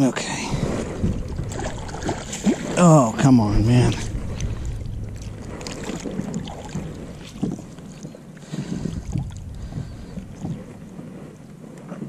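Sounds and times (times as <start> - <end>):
water splashing and sloshing: 0.0 - 12.0
wind on microphone: 0.4 - 12.0
soft knocks: 3.8 - 11.1.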